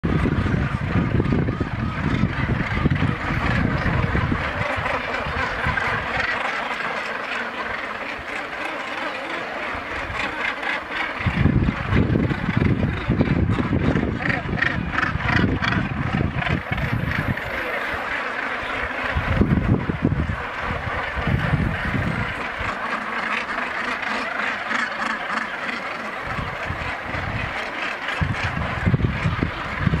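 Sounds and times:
gusty low rumble: 0.0 - 4.6, 11.2 - 17.4, 28.2 - 30.0
wind buffeting microphone: 0.0 - 6.3, 9.8 - 23.0, 26.2 - 30.0
gannets calling harshly: 0.1 - 30.0.

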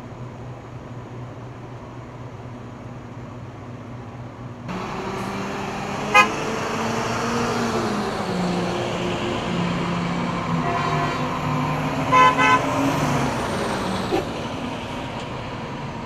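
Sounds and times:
low engine hum: 0.0 - 16.0
garbage trucks driving past: 4.6 - 16.0
short horn toot: 6.1 - 6.5.

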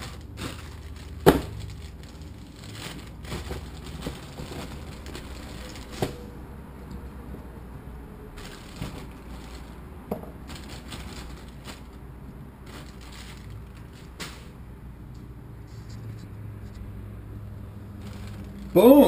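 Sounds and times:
plastic bags crinkling: 0.0 - 6.4, 8.2 - 14.7, 17.8 - 19.0.

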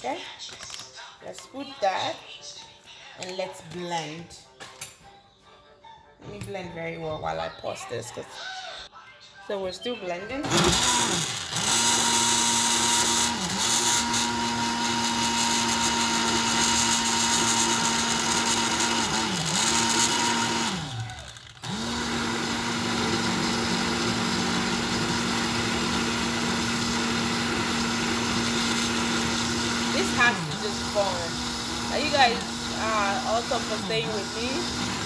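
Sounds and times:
blender motor running: 10.4 - 35.0.

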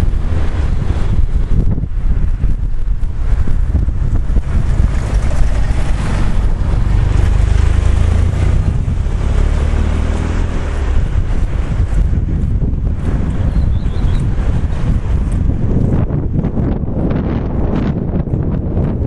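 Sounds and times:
rushing floodwater: 0.0 - 16.2
wind buffeting the microphone: 0.0 - 19.0.

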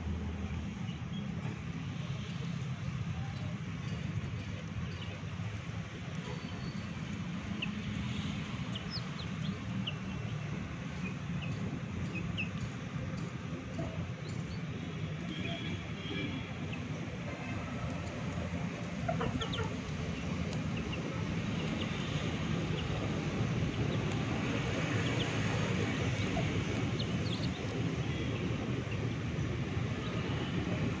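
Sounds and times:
chick peeping: 16.6 - 28.0
rooster clucking: 18.9 - 19.9.

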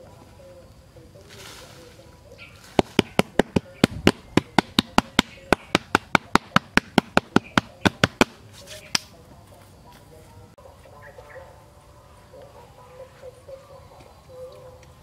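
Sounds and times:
palms slapping soil: 0.7 - 9.6.

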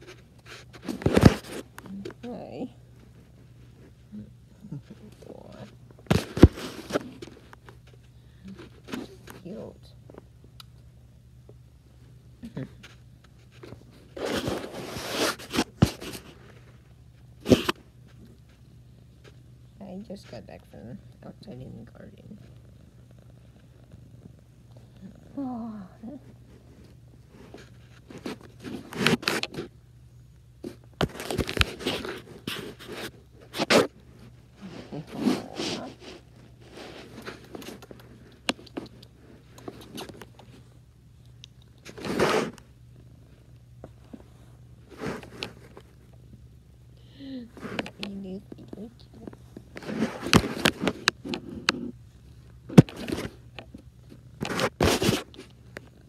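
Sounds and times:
fur rubbing against microphone: 13.4 - 16.4, 31.7 - 37.8, 41.9 - 42.6, 44.8 - 45.8.

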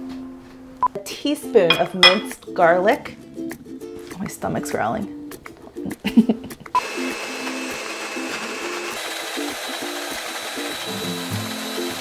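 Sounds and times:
blender whining: 6.8 - 12.0.

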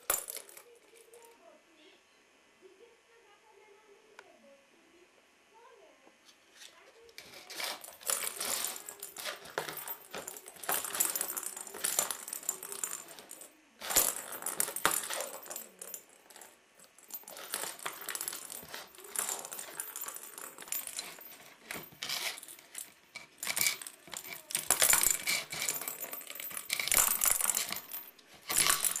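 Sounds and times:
plastic ball rattling in track: 7.2 - 29.0.

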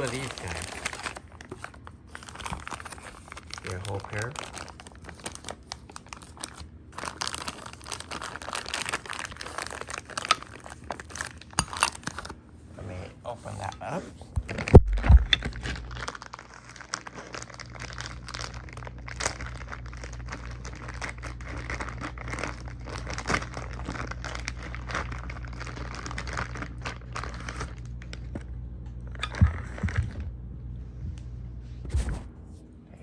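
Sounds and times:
packaging crinkling: 0.0 - 12.4, 14.4 - 28.4
low hum: 12.6 - 16.4, 17.4 - 33.0.

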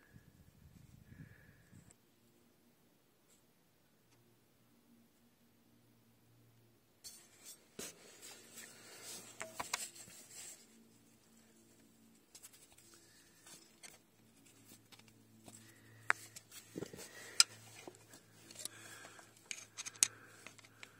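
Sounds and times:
handling rubbing and scraping: 7.1 - 20.9.

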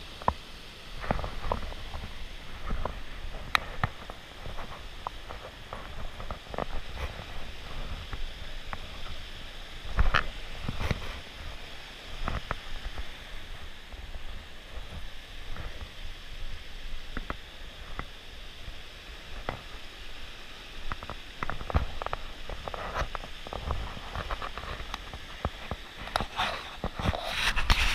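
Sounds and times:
rushing stream and waterfall: 0.0 - 27.9
footsteps on rocky ground: 1.0 - 18.2.

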